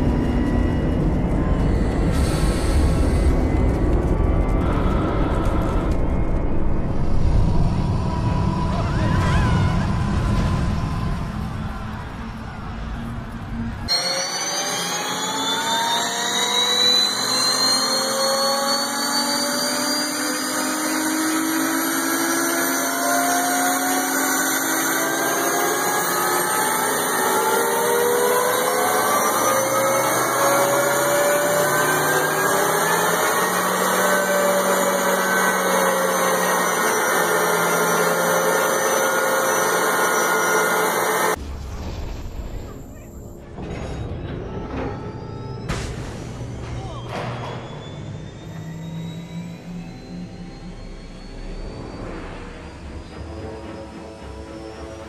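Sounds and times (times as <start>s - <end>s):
turbine engine whine: 0.0s - 55.0s.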